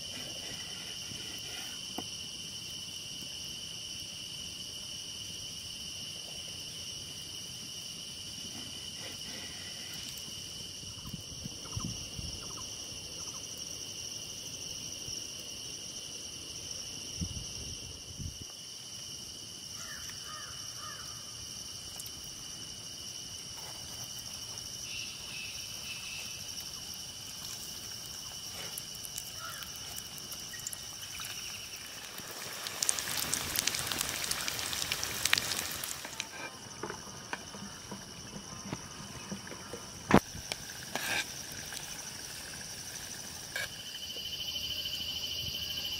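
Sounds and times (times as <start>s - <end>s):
insect chorus: 0.0s - 45.9s
hot oil sizzling and crackling: 24.0s - 39.2s, 40.1s - 44.3s.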